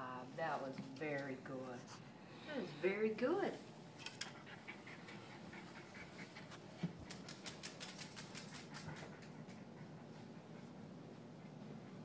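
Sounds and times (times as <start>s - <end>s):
dog claws clicking on floor: 4.0s - 4.4s, 6.8s - 9.6s.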